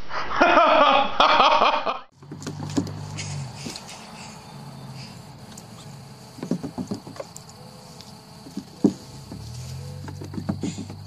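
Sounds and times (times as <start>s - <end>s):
cat paws scrabbling on plastic: 2.2s - 3.9s, 5.4s - 11.0s.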